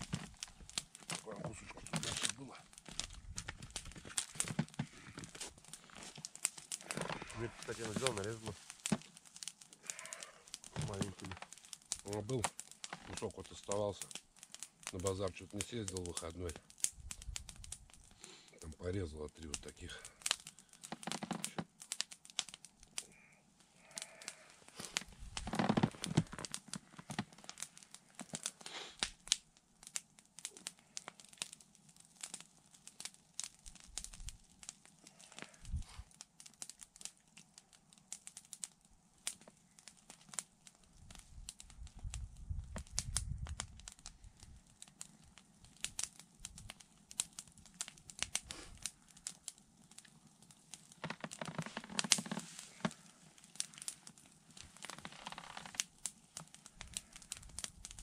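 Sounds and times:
low rustle: 0.0 - 14.1, 50.8 - 55.9
campfire crackling with snaps: 0.0 - 58.0.

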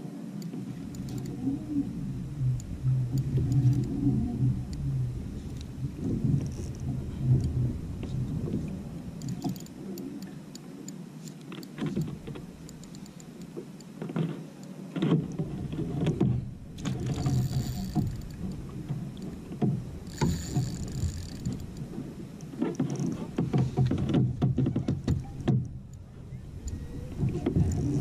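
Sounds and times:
water lapping against kayak hull: 0.4 - 10.9, 11.5 - 28.0
gear knocking and clicking: 15.1 - 18.6, 19.6 - 21.9.

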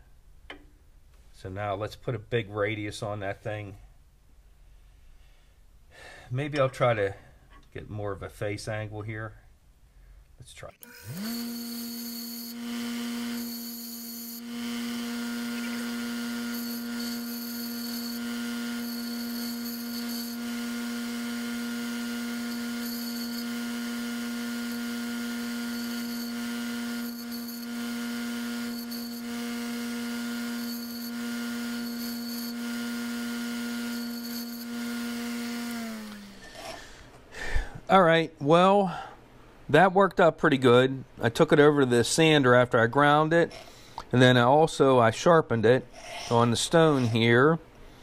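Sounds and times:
metal bit grinding on wheel: 10.8 - 36.6
bench grinder humming: 10.8 - 36.9.

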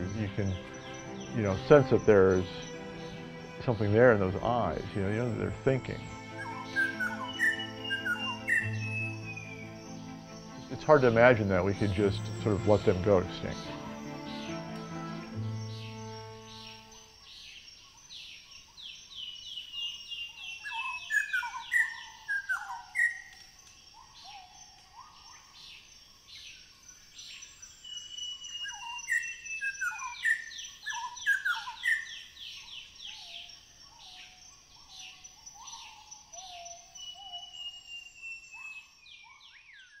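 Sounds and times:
bird singing whistles: 5.0 - 10.0, 20.1 - 23.3, 27.3 - 32.2, 35.6 - 40.0.

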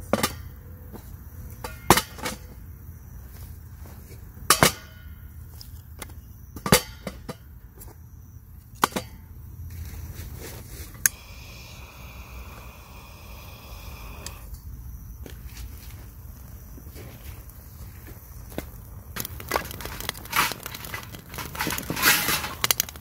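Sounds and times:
steady hiss: 10.7 - 18.6.

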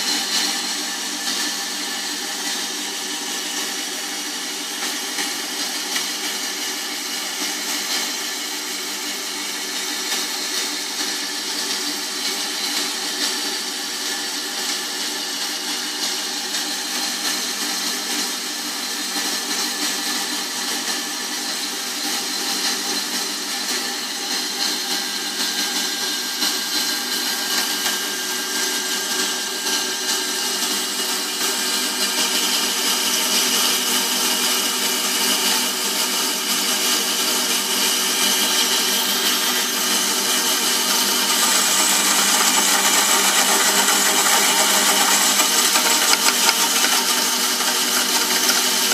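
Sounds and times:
band saw cutting metal rod: 38.3 - 48.9.

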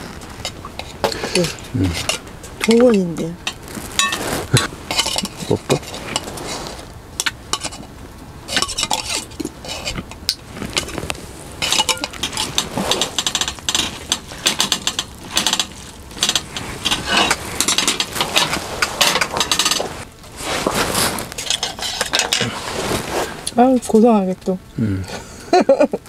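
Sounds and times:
utensils clattering on dishes: 0.4 - 6.5, 8.5 - 11.0, 11.6 - 20.0, 21.4 - 22.6.

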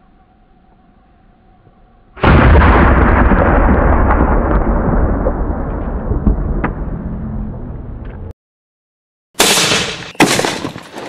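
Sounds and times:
long rumble: 1.3 - 8.3.

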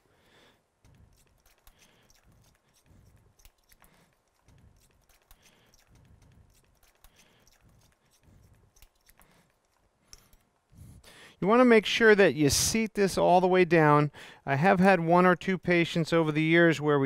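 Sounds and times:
hand driver creaking and grinding: 0.8 - 10.6.

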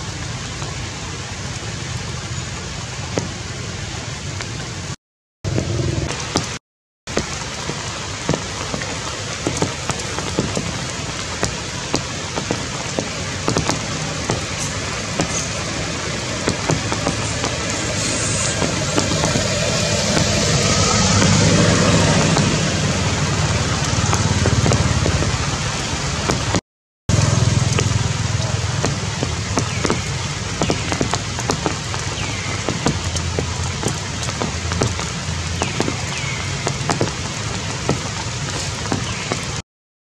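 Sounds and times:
heavy rain on foliage: 0.0 - 39.6
low rumble: 15.1 - 26.3.

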